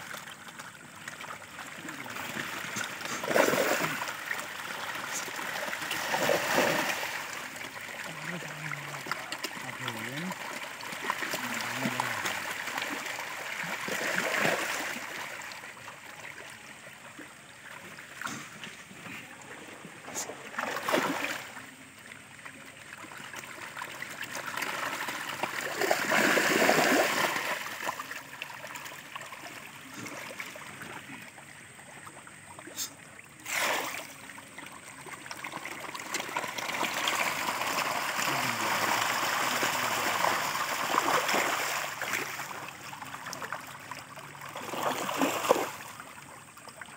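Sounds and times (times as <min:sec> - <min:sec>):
fish thrashing and splashing: 0:00.0 - 0:15.5, 0:23.4 - 0:30.5, 0:33.5 - 0:34.3, 0:35.0 - 0:45.9
sharp water splashes: 0:00.0 - 0:15.5, 0:20.0 - 0:21.6, 0:23.8 - 0:30.6, 0:32.7 - 0:34.4, 0:35.0 - 0:43.5, 0:44.4 - 0:46.0.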